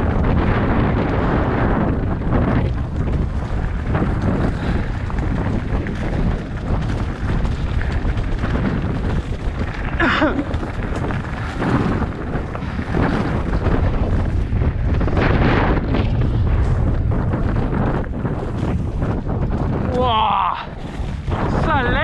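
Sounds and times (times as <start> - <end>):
low rumble: 0.0 - 22.0
wind buffeting microphone: 0.0 - 22.0.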